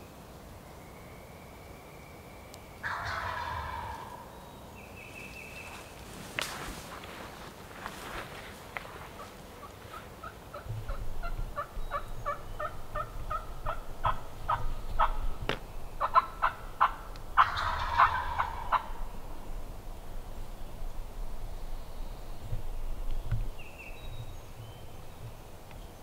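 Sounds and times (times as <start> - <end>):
turkey gobble: 2.8 - 4.3, 9.2 - 15.3, 16.0 - 19.1
wild turkey yelping: 2.8 - 4.3, 9.1 - 15.4, 16.0 - 19.1.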